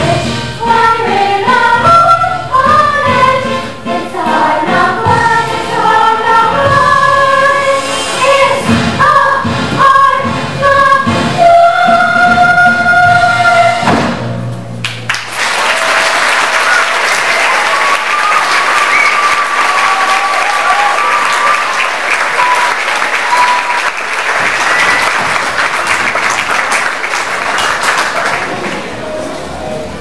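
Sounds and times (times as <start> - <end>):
audience applauding: 14.8 - 29.0.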